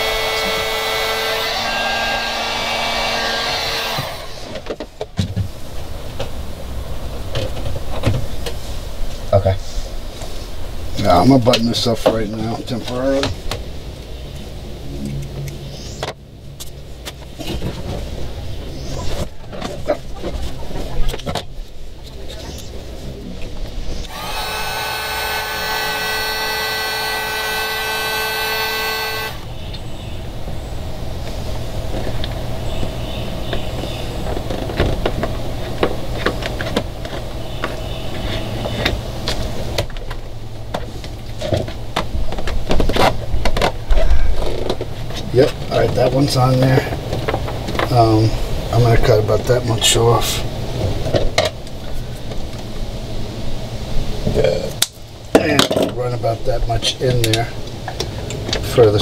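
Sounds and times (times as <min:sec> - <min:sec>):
heat gun blowing: 0:24.1 - 0:29.4.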